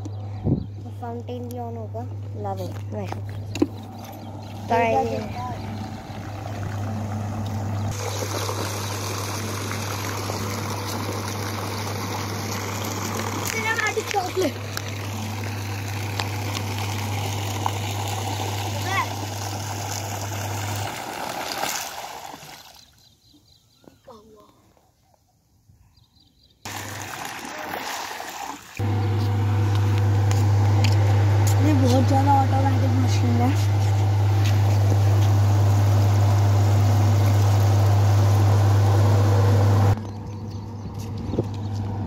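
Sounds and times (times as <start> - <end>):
steady low hum: 0.0 - 21.2, 28.8 - 42.0
water noise: 0.9 - 23.1, 26.7 - 42.0
fountain splashing into pool: 5.4 - 22.9, 26.7 - 30.9, 33.8 - 39.3.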